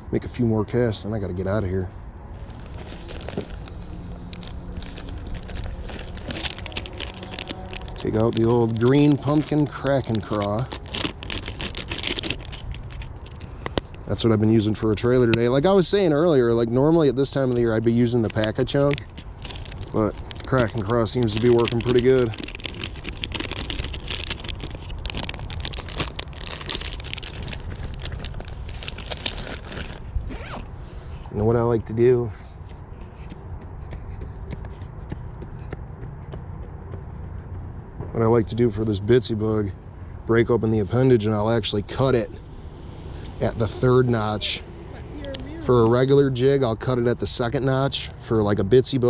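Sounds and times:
low rumble: 2.0s - 13.6s
plastic bag crackling: 2.3s - 14.3s, 17.2s - 30.6s.

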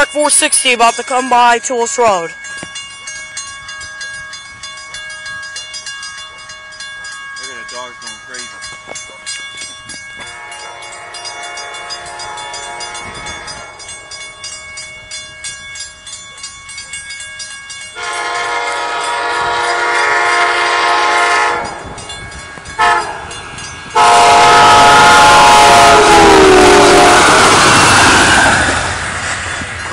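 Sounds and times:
crossing bell ringing: 0.0s - 29.9s
train horn blasts: 10.2s - 13.8s, 18.0s - 21.9s, 22.8s - 28.0s.

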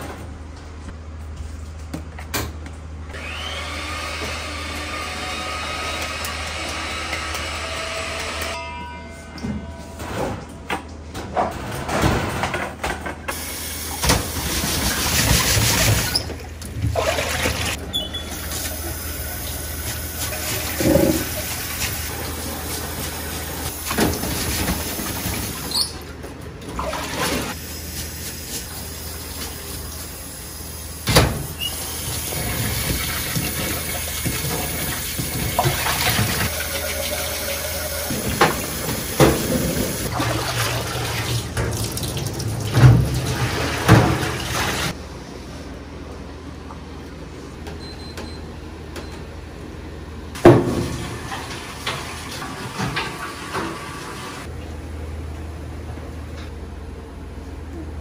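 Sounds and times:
tap water running into sink: 32.1s - 44.9s.

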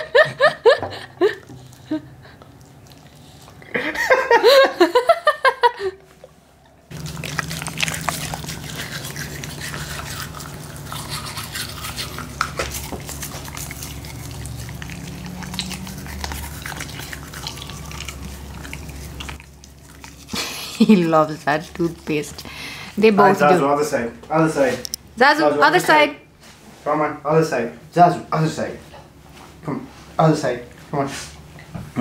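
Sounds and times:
steady low hum: 0.0s - 32.0s
toothbrush scrubbing dog's teeth: 6.9s - 23.6s.

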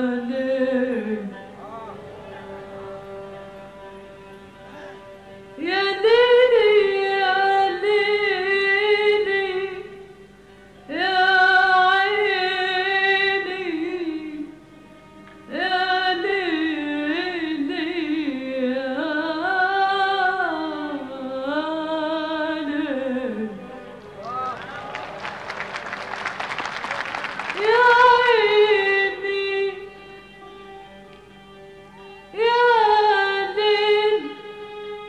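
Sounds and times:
woman singing: 0.0s - 1.6s, 5.6s - 10.1s, 10.9s - 14.6s, 15.5s - 24.0s, 27.5s - 30.6s, 32.0s - 35.0s.

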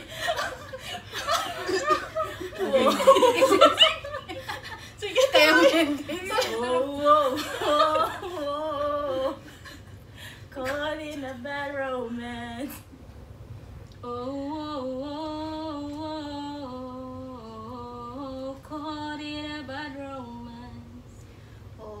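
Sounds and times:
woman singing wordless melody: 5.0s - 9.5s, 10.5s - 12.9s, 14.0s - 21.2s, 21.8s - 22.0s.

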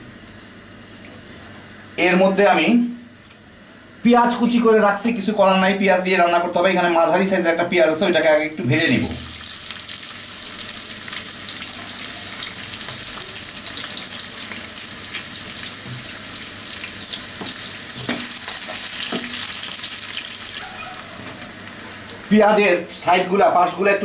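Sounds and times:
onion sizzling in hot oil: 8.7s - 22.6s.

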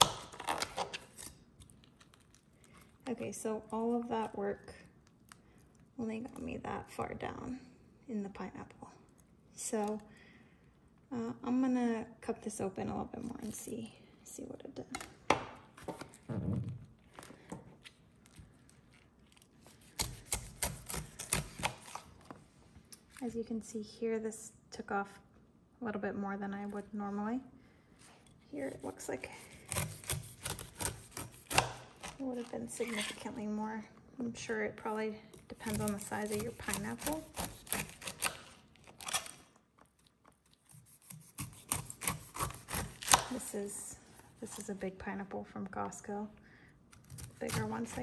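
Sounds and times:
knife crunching through pineapple: 18.7s - 22.2s, 28.7s - 33.2s, 35.5s - 43.5s.

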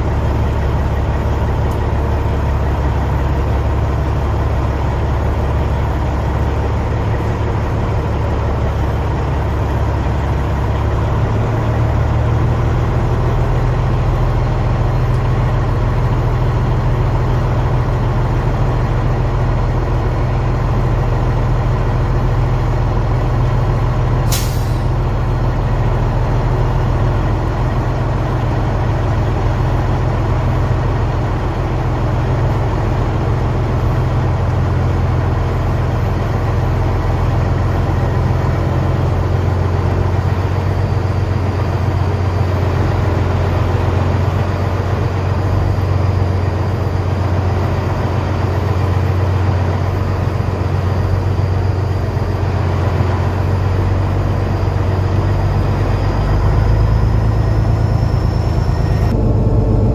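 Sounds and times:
truck diesel engine running: 0.0s - 59.9s
air brake hiss: 24.3s - 25.0s.

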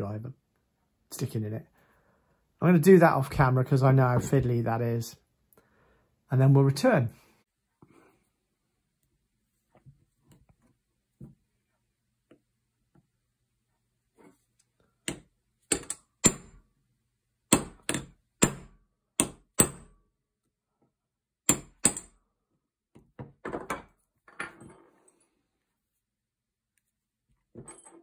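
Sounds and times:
hammer tapping metal punch: 15.1s - 16.6s, 17.5s - 19.9s.

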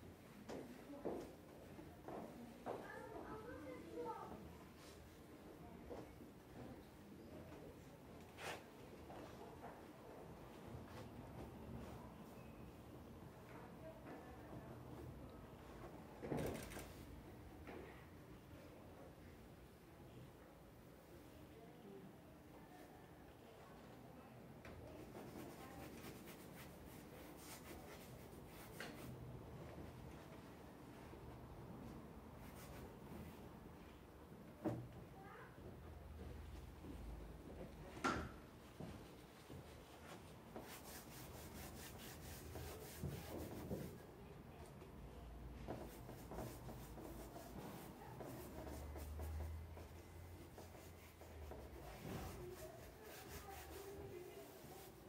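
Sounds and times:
paintbrush scratching: 25.0s - 29.2s, 40.6s - 44.0s, 45.7s - 55.0s.

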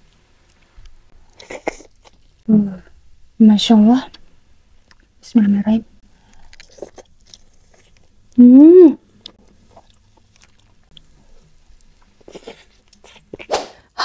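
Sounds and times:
chewing crispy chicken: 6.2s - 8.2s, 9.2s - 13.5s
hummed mmm: 8.3s - 9.4s.

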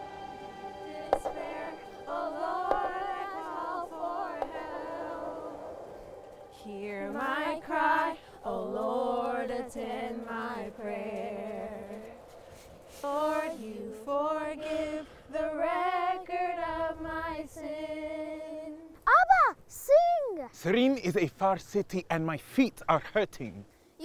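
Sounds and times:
woman singing unaccompanied: 0.7s - 5.6s, 6.5s - 12.2s, 13.0s - 19.0s.

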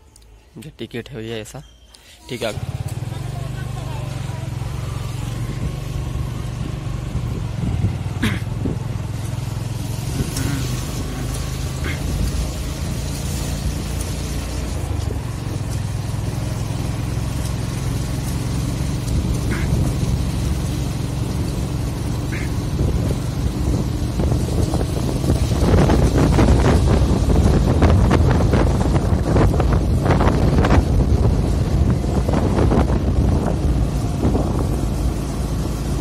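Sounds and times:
motorbike engine running: 2.4s - 36.0s
wind rushing on microphone: 5.3s - 9.2s, 22.3s - 36.0s.

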